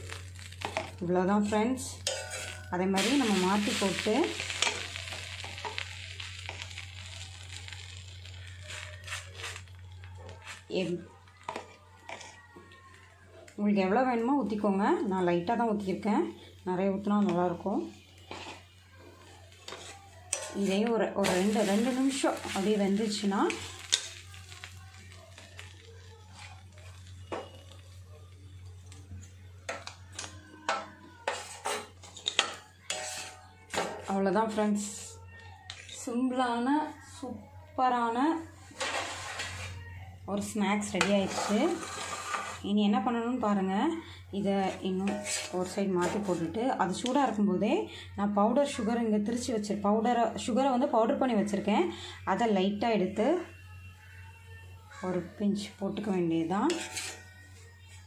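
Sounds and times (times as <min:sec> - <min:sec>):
bread sizzling on a griddle: 0:00.0 - 0:10.7, 0:15.7 - 0:30.2, 0:31.2 - 0:34.1, 0:38.5 - 0:39.8, 0:40.8 - 0:42.7, 0:44.9 - 0:46.4.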